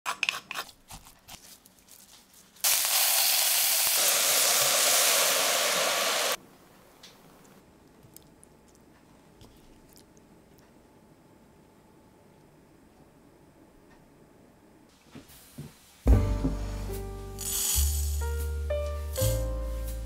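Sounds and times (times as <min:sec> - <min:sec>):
vegetables sizzling in a pot: 0:02.6 - 0:06.4, 0:17.4 - 0:18.6.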